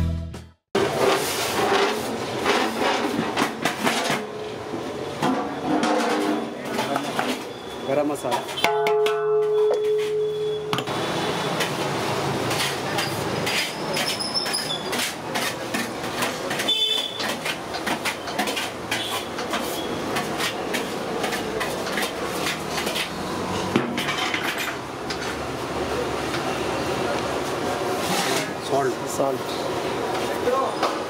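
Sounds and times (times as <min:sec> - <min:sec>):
metal pots and utensils clattering: 0:00.8 - 0:07.6, 0:08.2 - 0:10.6, 0:11.6 - 0:25.4, 0:28.0 - 0:28.8
steady background noise: 0:00.8 - 0:31.0.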